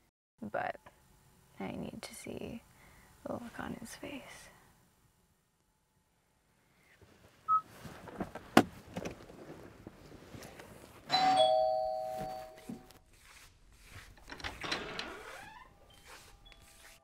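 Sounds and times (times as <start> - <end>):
two-note doorbell chime: 11.1 - 12.8.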